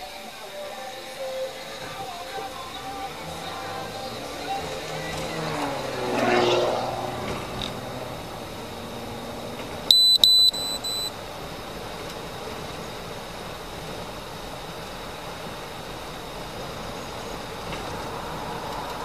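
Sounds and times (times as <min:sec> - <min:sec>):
car engine and road noise: 0:00.0 - 0:19.0
high electronic beeps: 0:09.9 - 0:11.1.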